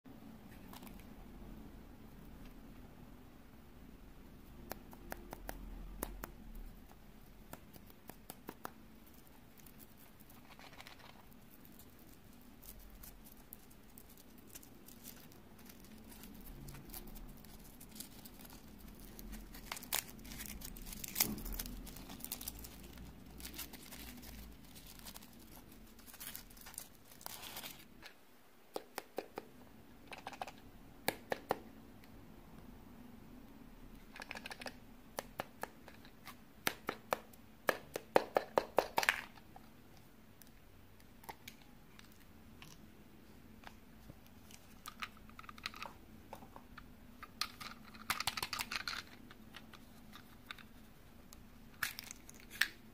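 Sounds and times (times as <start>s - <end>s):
foil crinkling: 9.0s - 27.9s.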